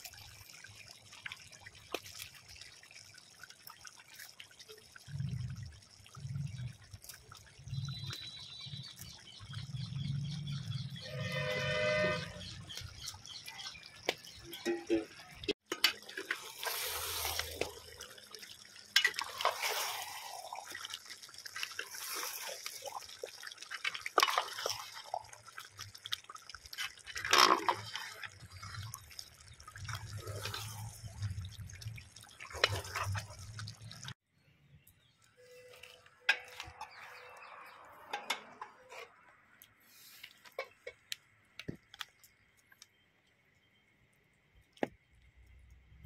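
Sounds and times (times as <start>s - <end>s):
curry bubbling in a pot: 0.0s - 34.2s.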